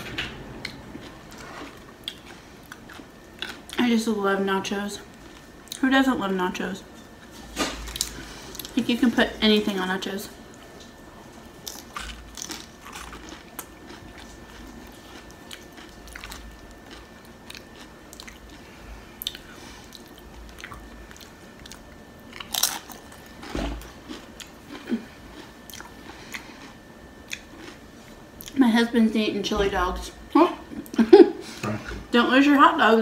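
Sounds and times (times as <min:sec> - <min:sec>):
person chewing crunchy chips: 0:00.4 - 0:03.8, 0:07.8 - 0:08.8, 0:11.6 - 0:28.6.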